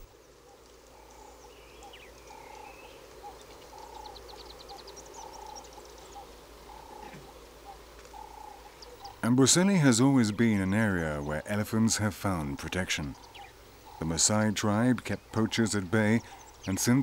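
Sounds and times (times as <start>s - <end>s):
steady animal chorus: 0.0s - 17.0s.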